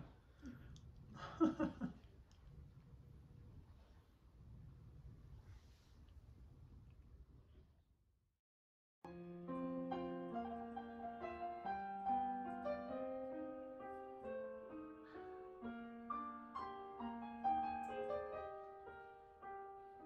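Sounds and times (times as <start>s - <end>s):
piano music: 9.1s - 20.0s.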